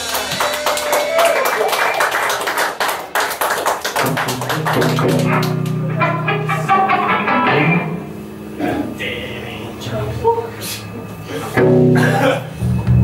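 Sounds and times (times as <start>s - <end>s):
crowd clapping: 0.0s - 6.5s
electric guitar notes: 3.9s - 13.0s
bass guitar notes: 4.0s - 13.0s.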